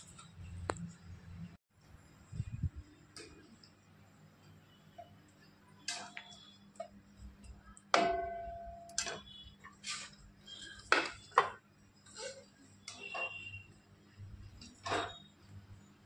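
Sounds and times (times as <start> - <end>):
metal ladle knocking on pan: 7.9 - 9.2
metallic clang: 7.9 - 10.1.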